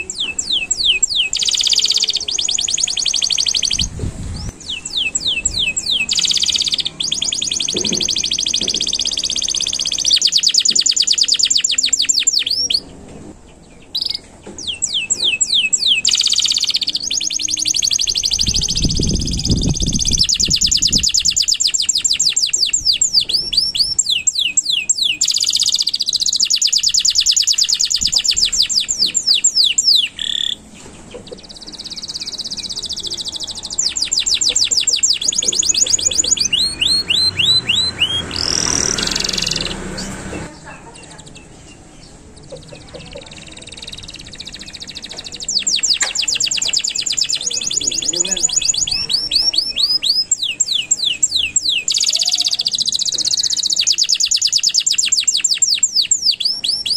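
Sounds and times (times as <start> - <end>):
canary singing trills: 0.0 - 56.9
low rumble: 3.8 - 5.8.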